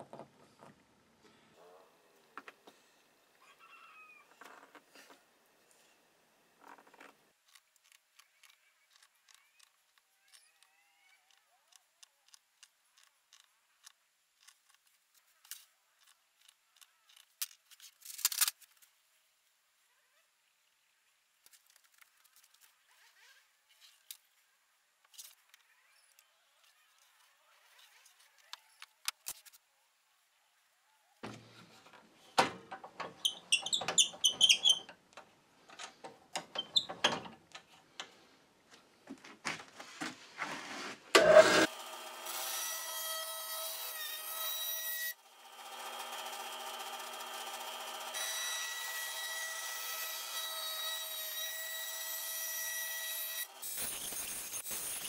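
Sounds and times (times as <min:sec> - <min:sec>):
bandsaw whining: 0:41.2 - 0:52.0.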